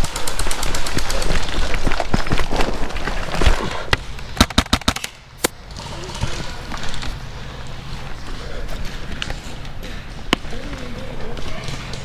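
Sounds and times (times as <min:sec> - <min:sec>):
sharp cracks: 0:03.3 - 0:07.2, 0:08.8 - 0:12.0.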